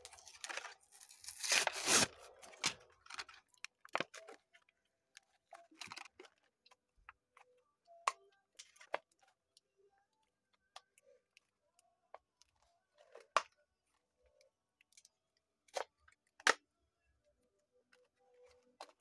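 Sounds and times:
card and plastic crinkling: 0:00.0 - 0:07.4
cardboard ripping: 0:00.2 - 0:02.8.

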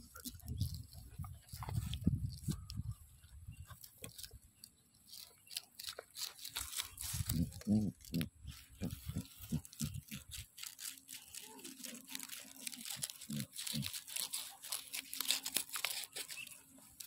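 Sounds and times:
puppy gnawing a bone: 0:00.0 - 0:17.0
puppy grunting: 0:07.3 - 0:10.1.

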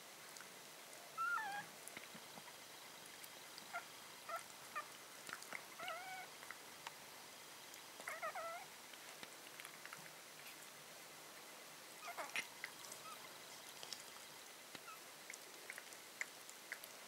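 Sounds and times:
puppies squeaking and whining: 0:01.2 - 0:01.7, 0:05.8 - 0:06.3, 0:08.0 - 0:08.7, 0:12.0 - 0:13.3.

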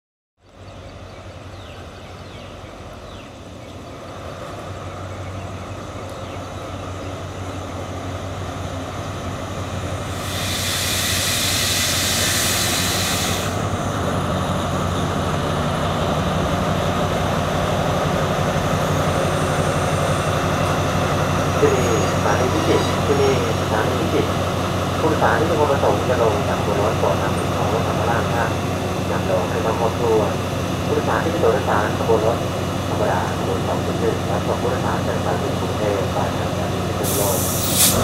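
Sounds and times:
locomotive engine hum: 0:00.4 - 0:38.0
loud hiss: 0:10.1 - 0:13.8, 0:37.0 - 0:38.0.

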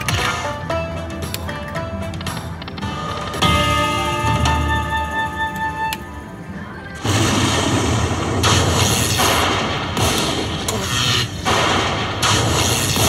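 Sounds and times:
slot machine explosion sound effect: 0:07.0 - 0:13.0.

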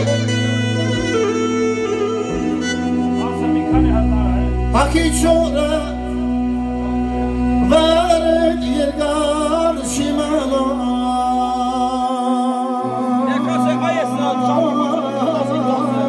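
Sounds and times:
backing music with chords: 0:00.0 - 0:16.0
man singing into microphone: 0:04.7 - 0:06.4, 0:07.6 - 0:16.0.

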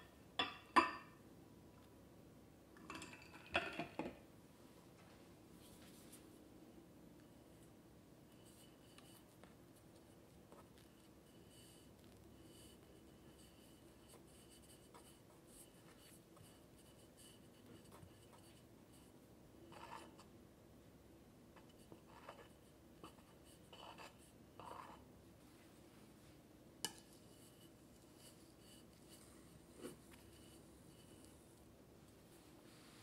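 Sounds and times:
palette knife scraping cream: 0:21.9 - 0:25.0.

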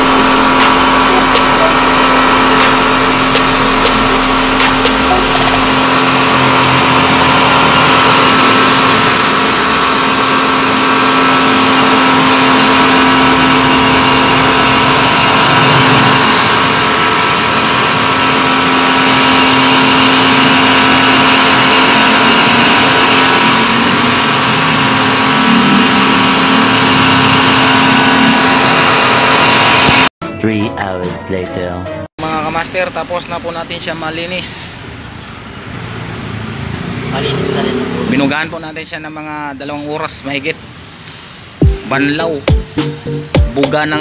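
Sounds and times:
water jet spraying metal fins: 0:00.0 - 0:29.4
pressure washer motor hum: 0:00.0 - 0:30.1.

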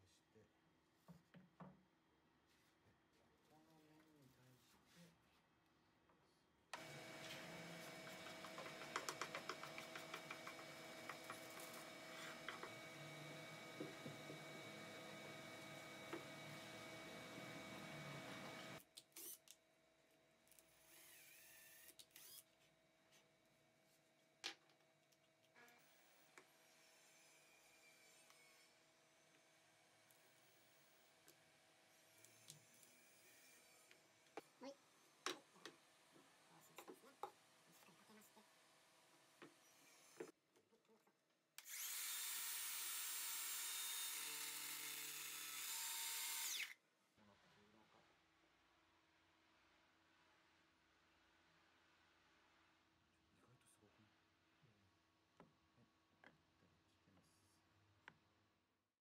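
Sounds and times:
circular saw whining: 0:41.7 - 0:46.8.

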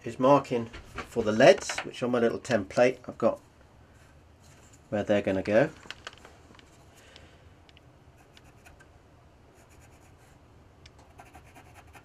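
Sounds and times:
pencil scratching on wood: 0:11.0 - 0:12.0.

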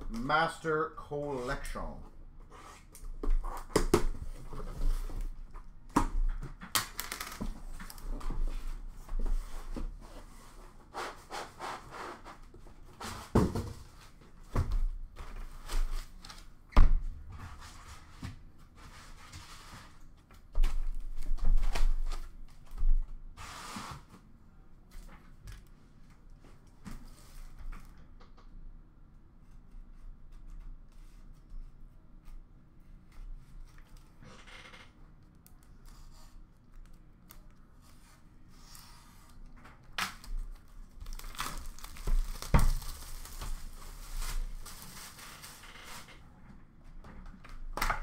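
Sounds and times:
rustling packaging: 0:40.2 - 0:46.2.

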